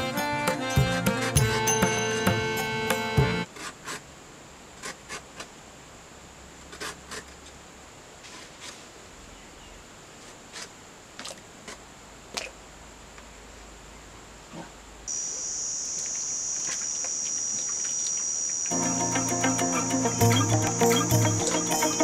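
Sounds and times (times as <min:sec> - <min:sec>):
faint high hiss: 0:11.8 - 0:22.0.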